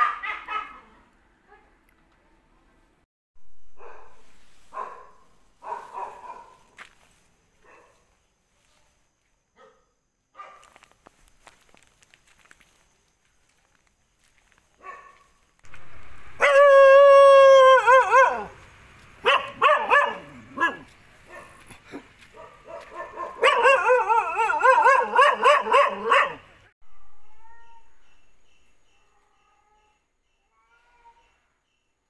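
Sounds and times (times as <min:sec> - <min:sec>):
dog whining and howling: 0:16.4 - 0:18.6, 0:23.4 - 0:26.4.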